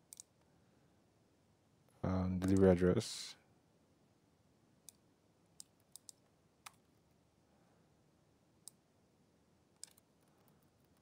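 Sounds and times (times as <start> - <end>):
mouse and keyboard clicks: 0.0 - 0.5, 2.4 - 2.7, 5.6 - 6.9, 9.8 - 11.0.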